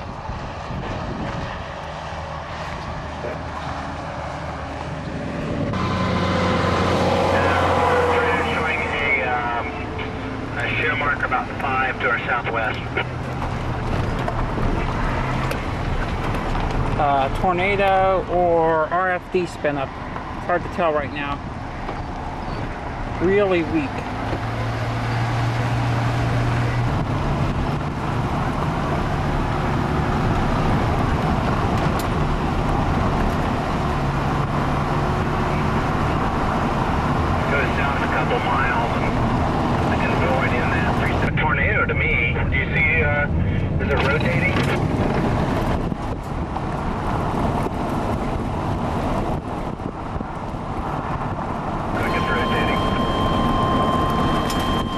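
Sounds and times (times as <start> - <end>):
wind buffeting microphone: 0.0 - 7.8, 12.1 - 18.4, 21.4 - 38.1, 42.8 - 52.0
car interior rumble: 0.0 - 54.9
low engine hum: 0.0 - 54.9
road noise inside vehicle: 0.0 - 54.9.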